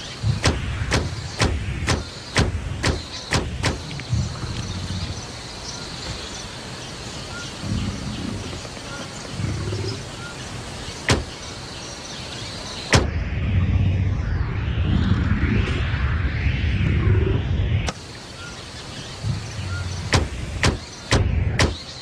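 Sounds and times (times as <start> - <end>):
low rumbles: 0.0 - 6.3, 7.4 - 10.2, 12.9 - 18.0, 18.8 - 21.7
television static hissing: 0.0 - 13.0, 17.9 - 22.0.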